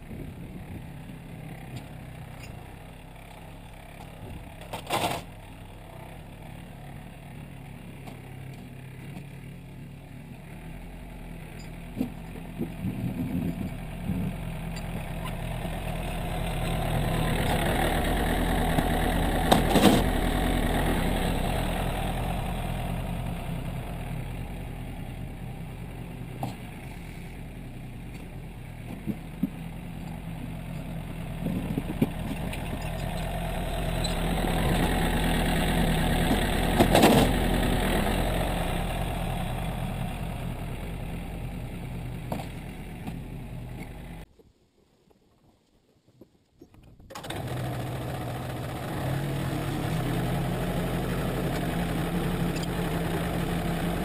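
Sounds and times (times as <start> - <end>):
tractor diesel engine running: 0.0 - 44.3, 47.1 - 54.0.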